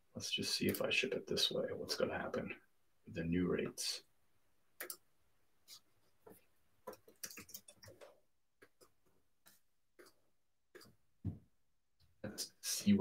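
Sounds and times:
keyboard and mouse clicking: 4.8s - 5.0s, 6.9s - 8.9s.

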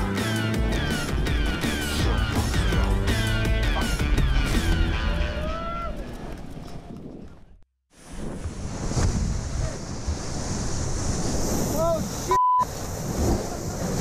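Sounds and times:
censor bleep: 12.3s - 12.7s.

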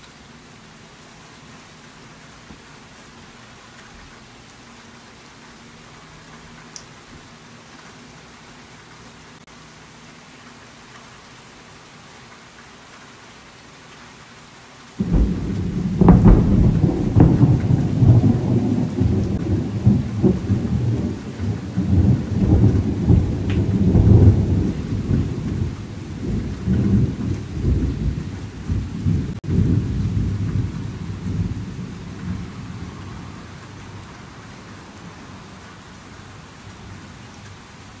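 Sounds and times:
steady rain: 0.0s - 38.0s
thunder clap: 15.0s - 33.2s
rolling thunder rumbling: 15.0s - 34.4s.

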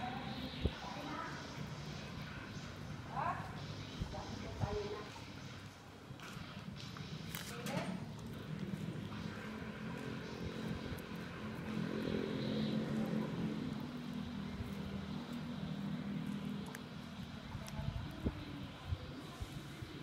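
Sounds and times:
engine drone: 0.0s - 20.0s.

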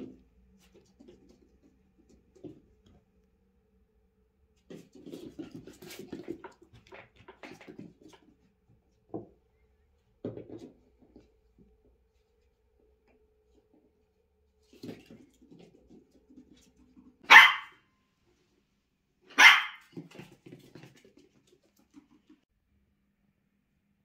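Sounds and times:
puppy claws clicking on floor: 4.7s - 8.5s.

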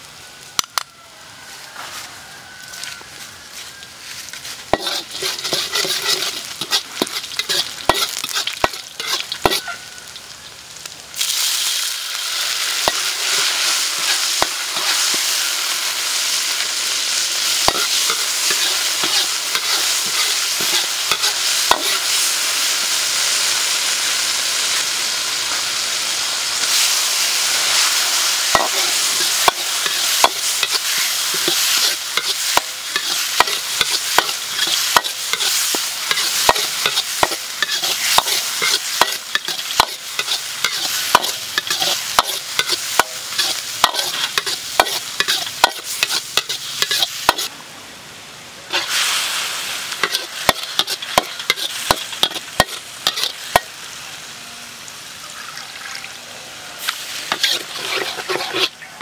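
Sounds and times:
food sizzling in a wok: 0.0s - 59.0s
metal ladle scraping a wok: 4.6s - 9.8s, 12.6s - 22.8s, 26.5s - 47.5s, 48.7s - 53.8s, 56.8s - 59.0s.

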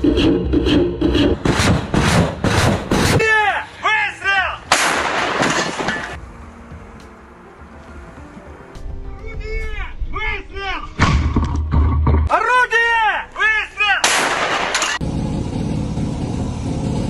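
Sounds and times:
loud artillery blast: 4.7s - 6.2s, 14.0s - 15.0s.

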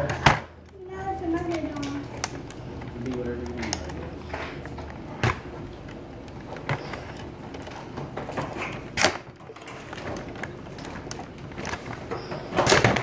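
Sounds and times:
knocks and clicks of handling: 0.0s - 13.0s.

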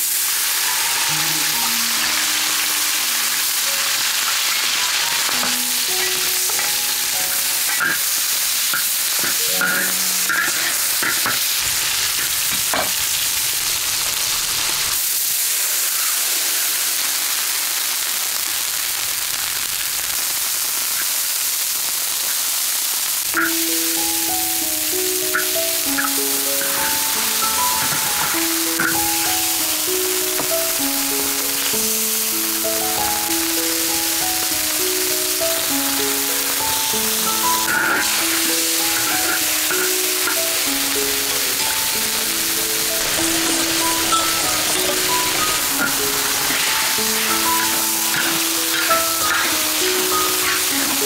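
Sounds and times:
food sizzling in hot oil: 0.0s - 51.0s
metal spatula scraping wok: 41.0s - 51.0s.

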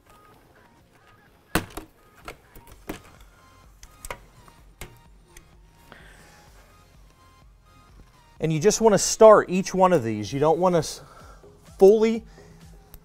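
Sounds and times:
faint background music: 0.0s - 13.0s
plastic cover clicks and knocks: 1.6s - 3.2s.

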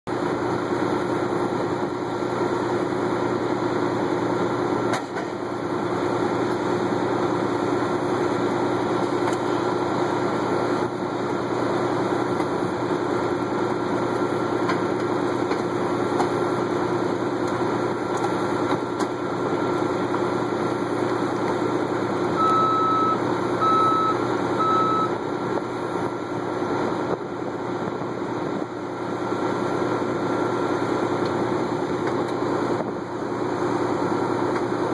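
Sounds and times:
diesel truck engine running: 0.1s - 34.9s
reversing alarm beeps: 22.4s - 25.2s.

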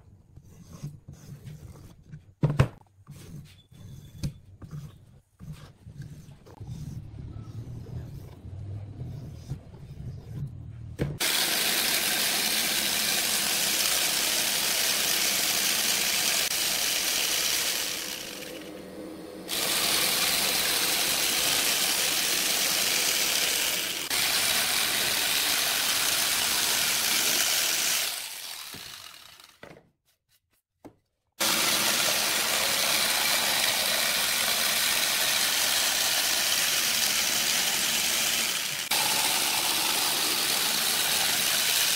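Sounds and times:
jigsaw cutting wood: 11.2s - 29.7s, 31.4s - 41.9s.

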